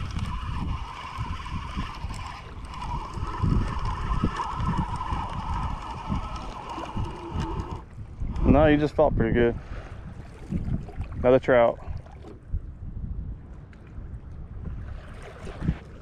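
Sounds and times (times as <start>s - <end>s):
fishing reel gear whine: 0.0s - 8.6s
wind buffeting microphone: 0.0s - 16.0s.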